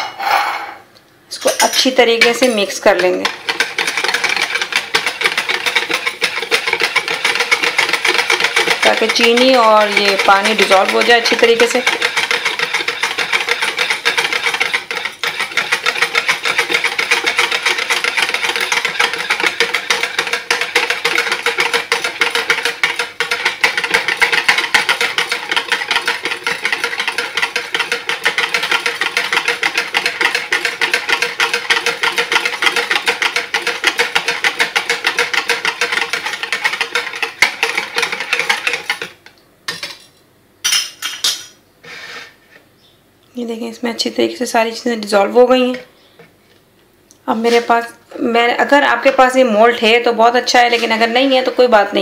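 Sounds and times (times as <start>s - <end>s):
metal utensil scraping plastic jug: 1.7s - 39.1s.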